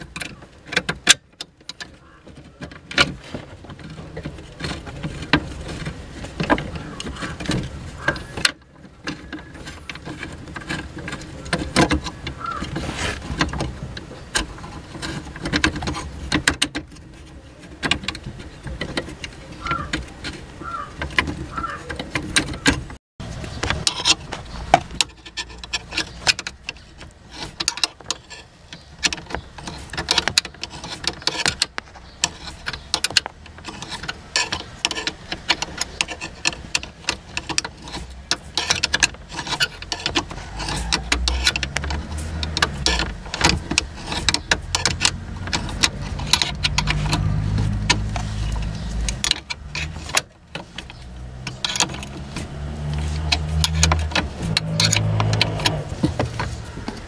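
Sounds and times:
spanner clinking on metal: 23.7s - 57.0s.

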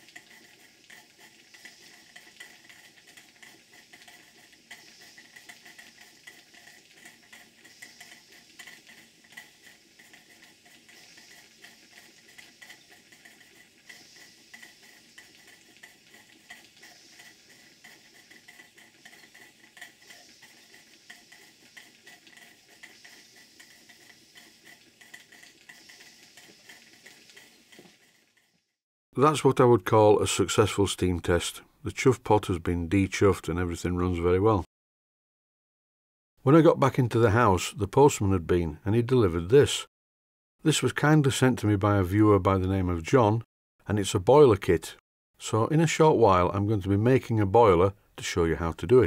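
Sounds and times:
soft steam hiss: 0.0s - 28.6s
steam engine parts ticking: 0.0s - 33.2s.

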